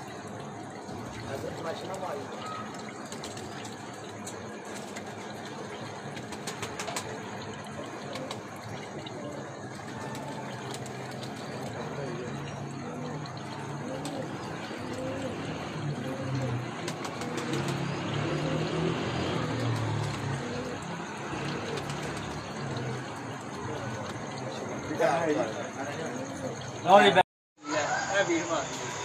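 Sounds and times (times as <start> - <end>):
outdoor noise hiss: 0.0 - 29.0
indistinct voices talking: 6.6 - 29.0.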